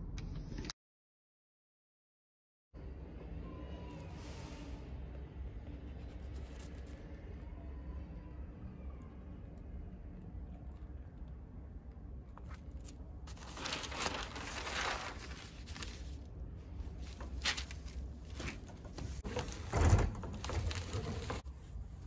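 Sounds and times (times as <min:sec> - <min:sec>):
paper sheets rustling: 0:12.4 - 0:21.5.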